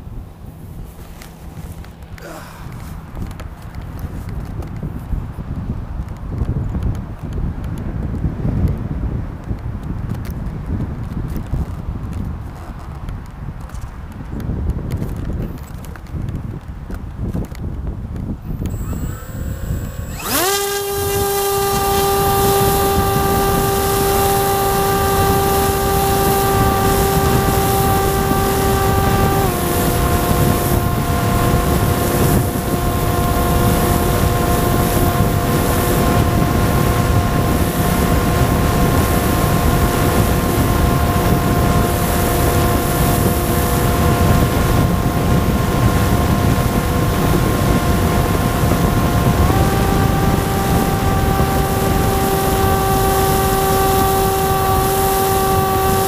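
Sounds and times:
electric motor and propeller whine: 0.0 - 5.1, 18.4 - 56.0
rush of air: 0.8 - 3.3.

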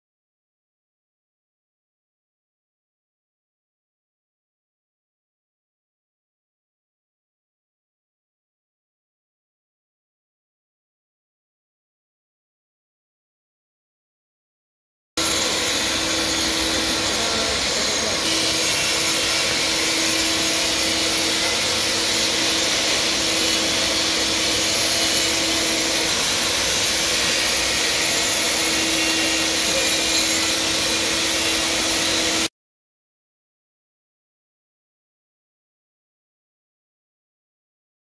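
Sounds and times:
angle grinder grinding concrete: 15.2 - 32.5
vacuum dust extractor running: 15.2 - 32.5.

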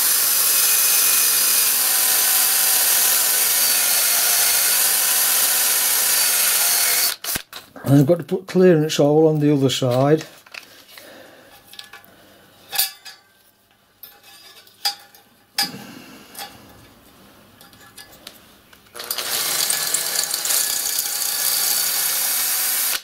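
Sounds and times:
cordless drill boring steel: 0.0 - 7.4, 19.0 - 23.0.

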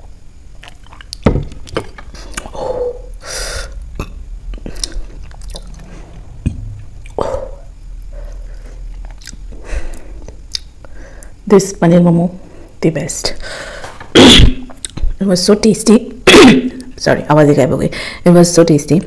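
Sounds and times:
mouth eating and drinking sounds: 0.5 - 7.7, 8.8 - 10.7
breathy exhale: 2.5 - 3.8, 5.7 - 8.9, 13.4 - 14.0.

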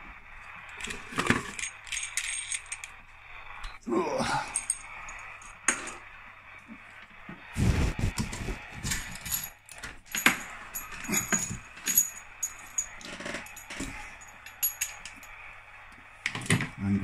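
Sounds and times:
cable connectors clinking: 8.9 - 15.4.

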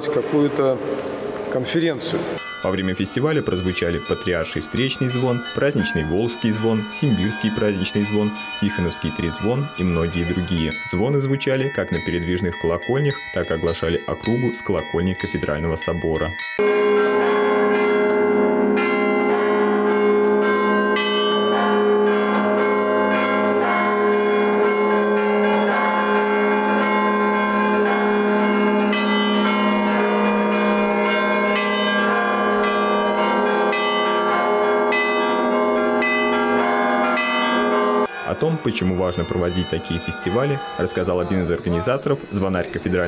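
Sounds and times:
large bells humming: 1.5 - 43.0
small church bells striking: 2.4 - 43.0.

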